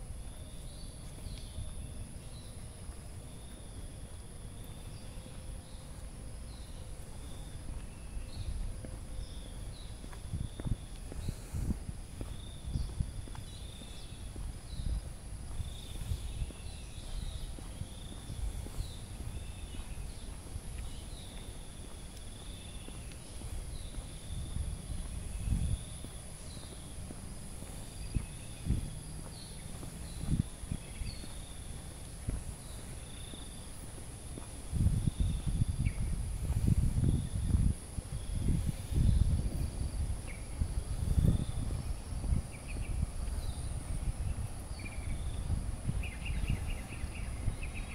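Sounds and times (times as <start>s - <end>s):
crickets droning: 0.0s - 47.9s
insect chirping calls: 0.0s - 47.9s.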